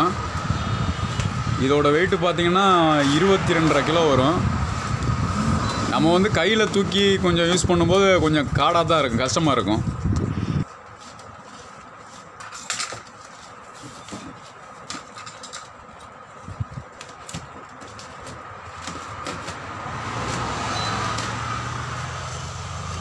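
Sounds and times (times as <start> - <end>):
low motor hum: 3.6 - 8.5.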